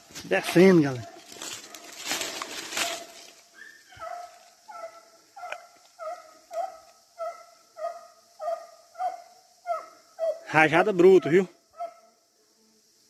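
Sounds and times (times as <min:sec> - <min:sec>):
brush rustling: 0:00.0 - 0:06.7
hound baying: 0:03.9 - 0:10.5, 0:11.2 - 0:12.1.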